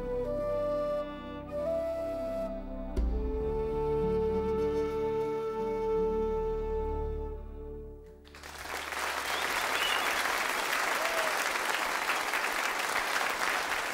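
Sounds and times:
audience applause: 8.3s - 13.9s.

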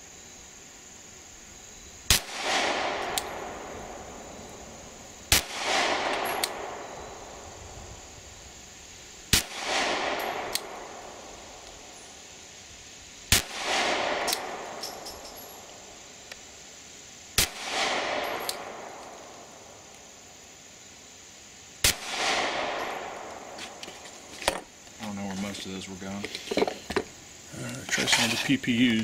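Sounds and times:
pistol shots with echo: 2.1s - 4.3s, 5.3s - 7.4s, 9.3s - 11.3s, 13.3s - 15.7s, 17.4s - 19.0s, 21.8s - 23.6s.

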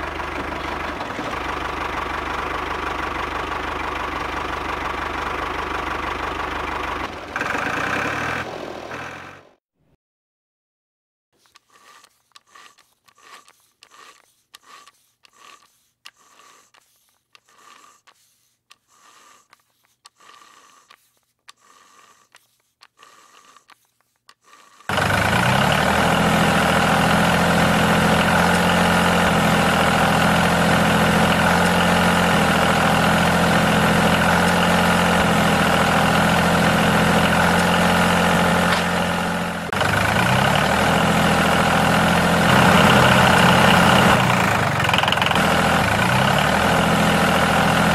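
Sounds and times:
diesel engine running: 0.0s - 9.6s, 24.9s - 47.9s.

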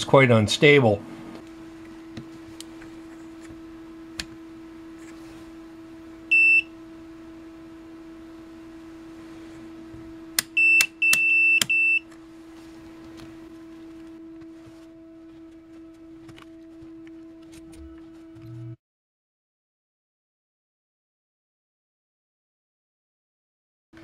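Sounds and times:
steady low hum: 0.0s - 18.8s
multimeter beeps: 6.3s - 6.7s, 10.5s - 12.1s
dial and button clicks: 10.4s - 12.0s.

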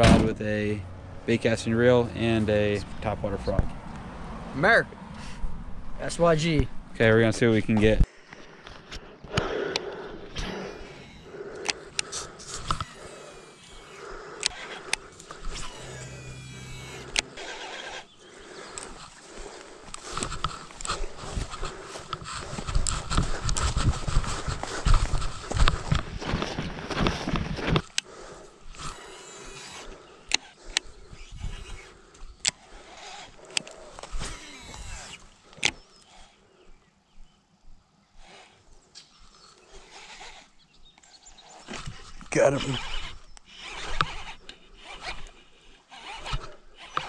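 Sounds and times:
reel spool whirring: 10.4s - 26.0s, 27.7s - 36.3s, 39.3s - 40.6s, 41.3s - 47.0s
clothing and grass rustling: 12.1s - 29.6s.

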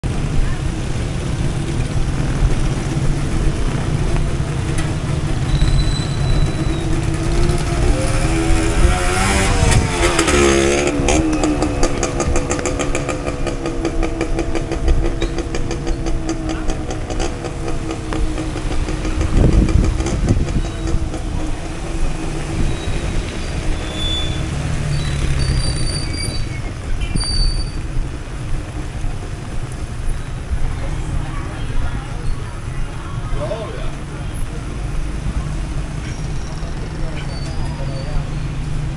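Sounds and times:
steady rain: 0.0s - 5.6s, 11.6s - 19.3s, 21.0s - 36.0s
car and motorcycle engines: 0.0s - 38.9s
heavy vehicle rumbling past: 0.0s - 38.9s.

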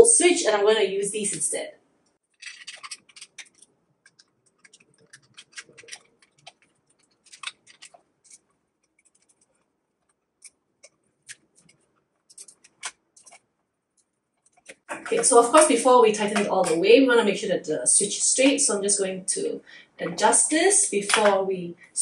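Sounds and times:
screwdriver clicks and scrapes: 2.3s - 9.6s.

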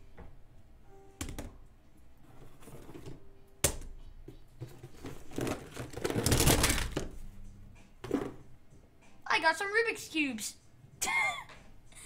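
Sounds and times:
plastic cubes clattering: 4.8s - 7.2s.

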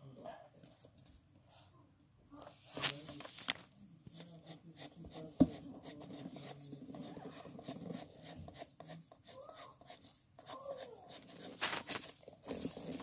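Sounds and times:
pencil scratching on paper: 4.1s - 13.0s.

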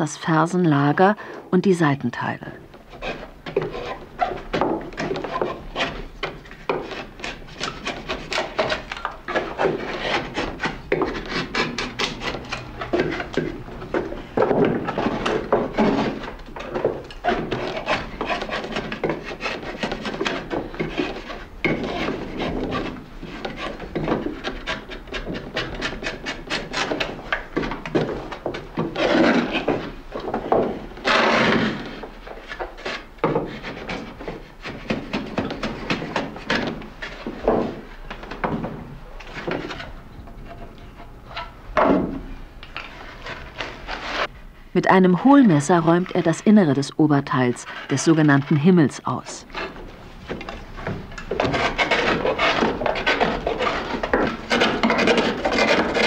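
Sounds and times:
knife scraping wood: 2.8s - 41.6s, 42.6s - 44.3s, 47.6s - 56.0s.

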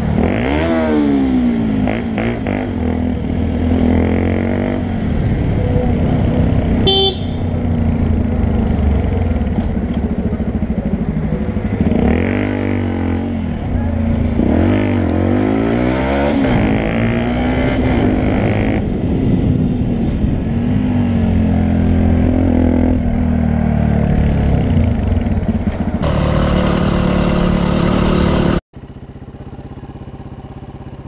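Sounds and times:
motorcycle engine running steadily: 4.7s - 14.6s, 18.8s - 31.0s.

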